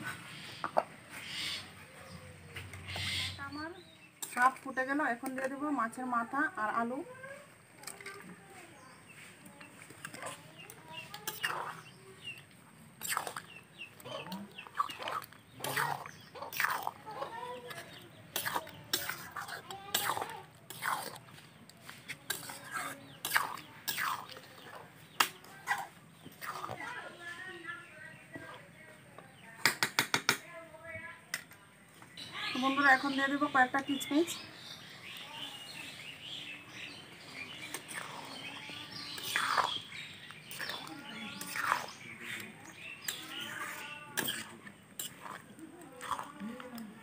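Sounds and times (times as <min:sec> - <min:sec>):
birds chirping: 0:00.0 - 0:47.0
spatula scraping metal pan: 0:10.1 - 0:11.9, 0:14.9 - 0:26.8, 0:37.4 - 0:45.4.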